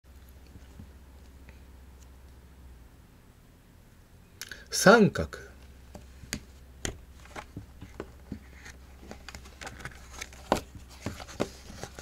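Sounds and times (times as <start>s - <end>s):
book pages turning and rustling: 6.3s - 12.0s.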